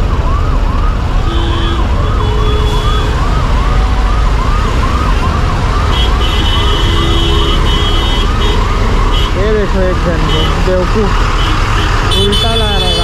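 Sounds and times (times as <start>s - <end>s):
ambulance siren wailing: 0.0s - 13.0s
low rumble of traffic: 0.0s - 13.0s
vehicle horns honking: 1.2s - 3.1s, 5.9s - 9.6s, 10.2s - 10.8s, 11.4s - 13.0s.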